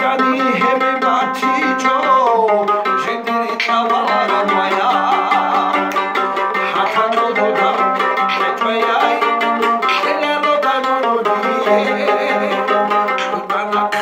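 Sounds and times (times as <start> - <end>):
man singing folk song: 0.0 - 14.0
mandolin picking: 0.0 - 14.0.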